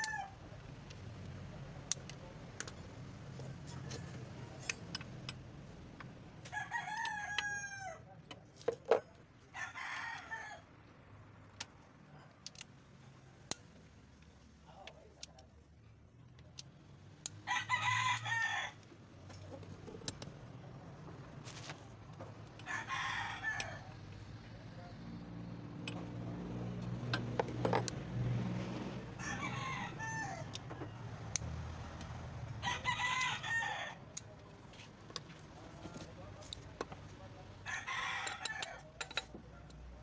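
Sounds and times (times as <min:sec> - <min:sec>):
rooster crowing: 0:00.0 - 0:00.4, 0:06.4 - 0:08.1, 0:09.5 - 0:10.7, 0:17.4 - 0:18.8, 0:22.6 - 0:24.0, 0:29.0 - 0:30.7, 0:32.6 - 0:34.0, 0:37.6 - 0:38.9.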